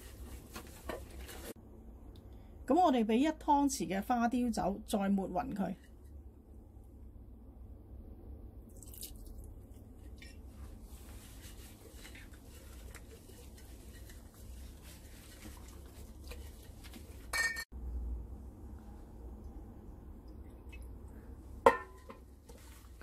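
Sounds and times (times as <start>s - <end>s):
wet handling of raw chicken: 8.7s - 17.3s.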